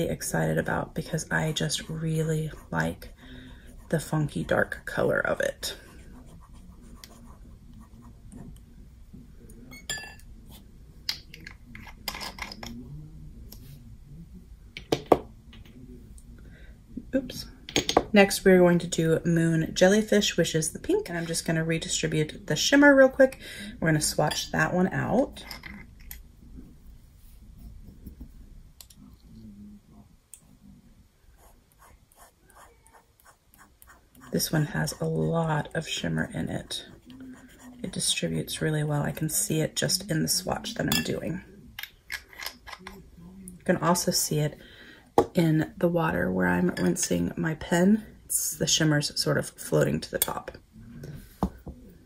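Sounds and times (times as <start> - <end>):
glass clinking: 9.7 - 10.2.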